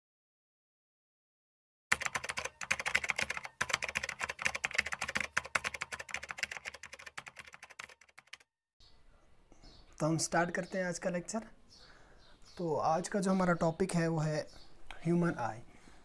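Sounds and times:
rapid irregular clicking: 0:01.9 - 0:08.4.

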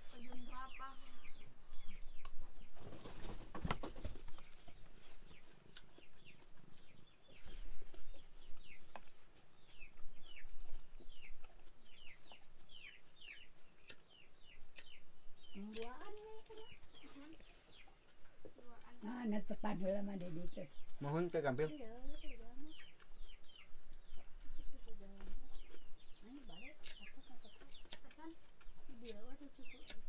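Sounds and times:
knocks and rustling: 0:02.7 - 0:04.7
chicks peeping: 0:20.8 - 0:30.0.

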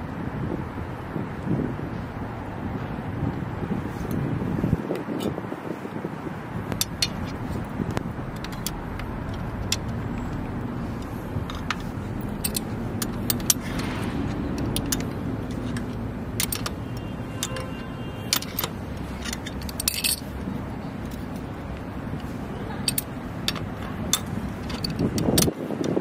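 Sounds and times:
low hum of road traffic: 0:00.0 - 0:26.0
metallic clicks of wrench and bracket: 0:06.7 - 0:20.4, 0:21.0 - 0:26.0.

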